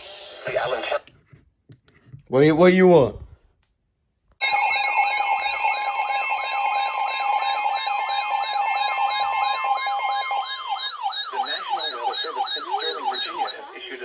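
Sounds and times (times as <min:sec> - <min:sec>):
weather alert siren sweep: 0:04.4 - 0:13.7
steady high alert tones: 0:04.4 - 0:14.0.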